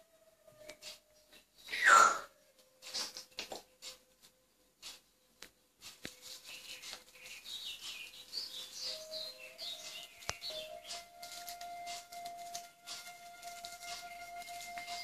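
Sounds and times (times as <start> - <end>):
parrot chirping and squeaking: 1.6 - 3.2, 6.4 - 11.2.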